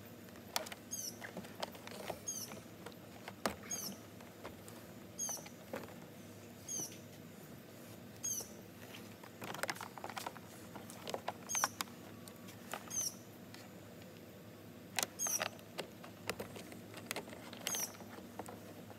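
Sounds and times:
bird chirping: 0:00.9 - 0:01.3, 0:02.2 - 0:02.6, 0:03.6 - 0:04.0, 0:05.2 - 0:05.6, 0:06.6 - 0:07.0, 0:08.2 - 0:08.6, 0:11.4 - 0:11.9, 0:12.8 - 0:13.3, 0:15.1 - 0:15.5, 0:17.6 - 0:18.1
plastic clicks and knocks: 0:09.2 - 0:12.0, 0:15.0 - 0:18.6.

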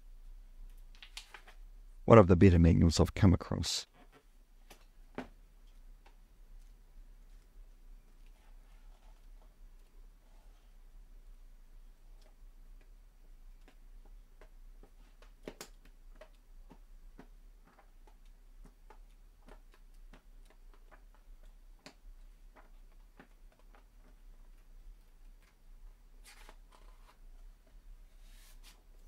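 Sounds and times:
pages flipping: 0:00.9 - 0:01.6, 0:26.2 - 0:27.5
paper rustle: 0:26.2 - 0:27.2.

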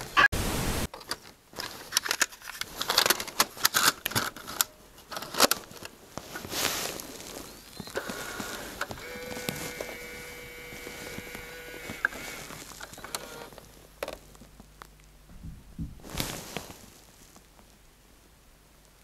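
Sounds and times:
short rustle: 0:01.6 - 0:13.9, 0:16.0 - 0:17.8
steady whine: 0:07.5 - 0:14.2.

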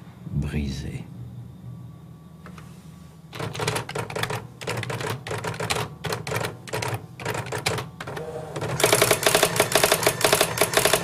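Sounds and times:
steady low hum: 0:00.0 - 0:11.0
rapid mechanical clicking clatter: 0:03.4 - 0:11.0.

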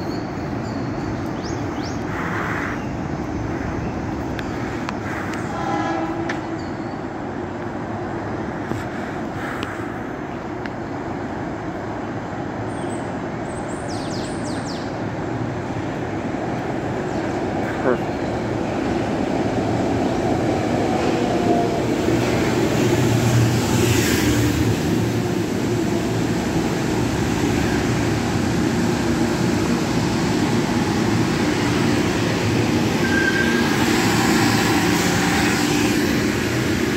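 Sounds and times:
train wheels rumbling on rail: 0:00.0 - 0:36.9
high squeal: 0:33.0 - 0:36.0.

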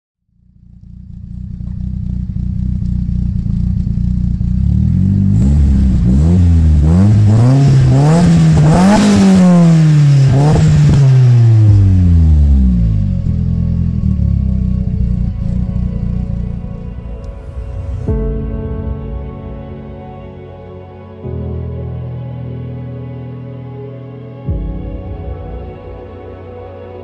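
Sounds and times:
car engine idling and revving: 0:00.3 - 0:18.3.

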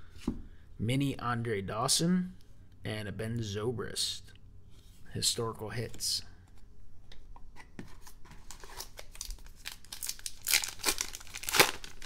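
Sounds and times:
card pack wrapper tearing and crinkling: 0:08.4 - 0:12.0.

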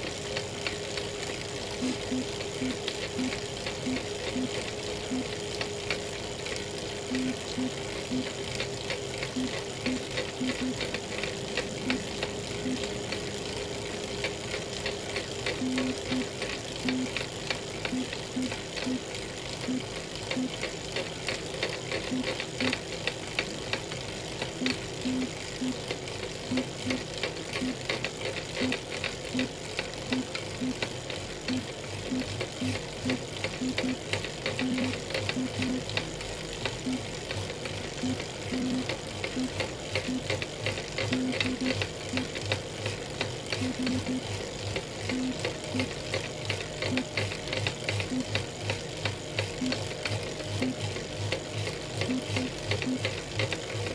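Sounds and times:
bike trainer whirring: 0:00.0 - 0:53.9.

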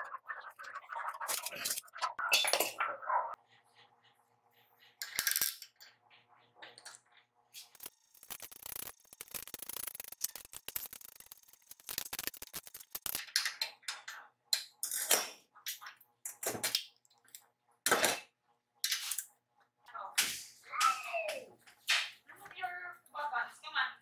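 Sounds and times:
small clicks and ticks of tools: 0:06.6 - 0:15.0
metal parts scraping and rustling: 0:07.6 - 0:13.6.

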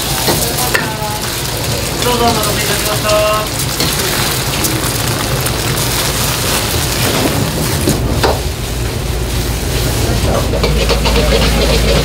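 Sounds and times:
rice sizzling in a wok: 0:00.0 - 0:12.0
metal ladle scraping wok: 0:10.4 - 0:12.0.

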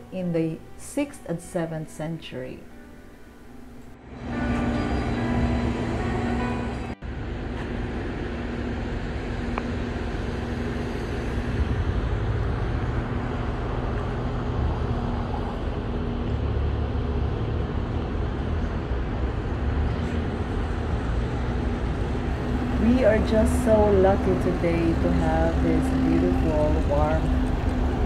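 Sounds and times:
distant road traffic rumble: 0:05.0 - 0:28.0
faint steady hum: 0:21.7 - 0:28.0.

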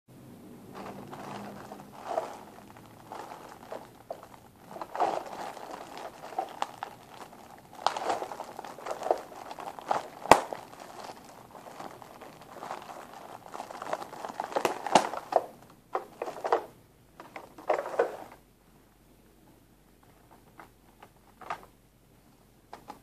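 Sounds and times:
plastic bag crinkling: 0:00.6 - 0:16.7, 0:17.5 - 0:18.4.

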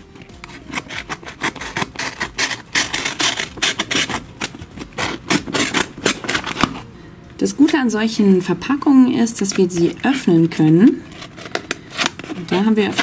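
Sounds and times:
utility knife cutting paper: 0:00.2 - 0:06.9, 0:09.4 - 0:13.0.

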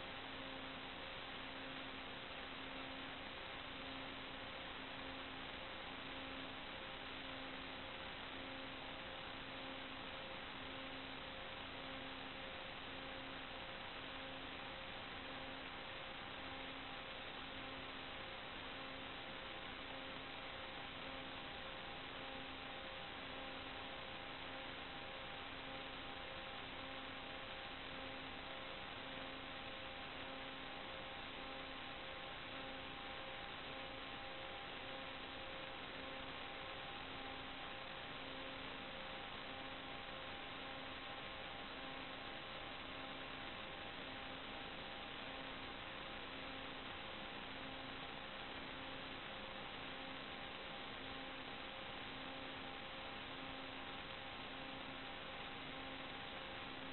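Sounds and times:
faint electrical hum: 0:00.0 - 0:56.9
steady hiss: 0:00.0 - 0:56.9.

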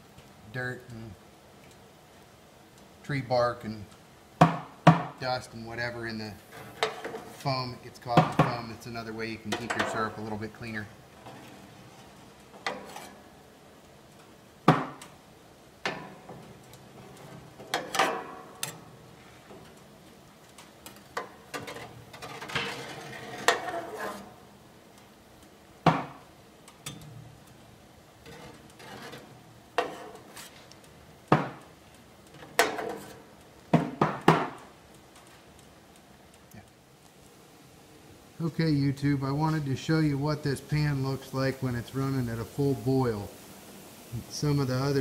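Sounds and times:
spoon scraping pan: 0:06.4 - 0:13.4, 0:20.6 - 0:24.4, 0:28.2 - 0:30.9, 0:32.3 - 0:33.4.

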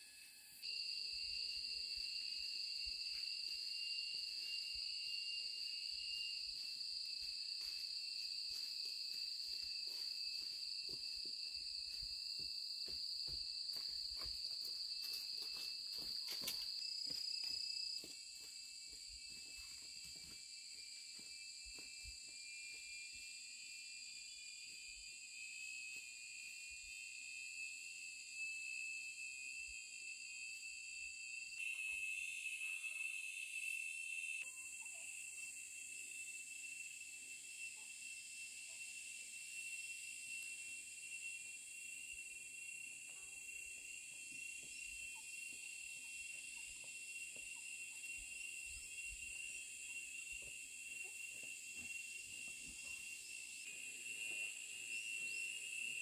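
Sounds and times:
insects high-pitched chorus: 0:00.0 - 0:56.0.

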